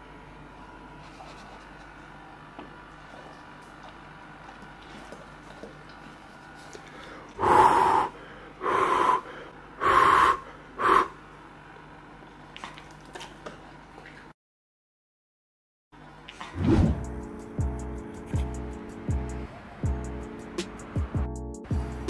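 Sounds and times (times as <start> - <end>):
breathy huffs of breath: 6.8 - 11.2.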